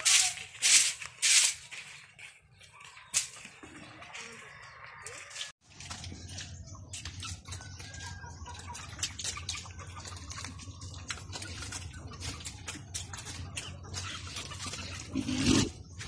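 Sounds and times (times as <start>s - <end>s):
pigs chewing and slurping: 3.4s - 16.0s.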